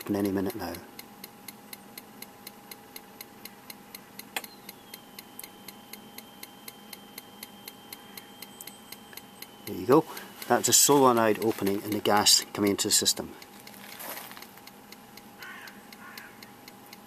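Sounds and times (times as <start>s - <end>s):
solenoid mechanical click: 0.0s - 13.5s
faint steady high tone: 4.4s - 13.5s.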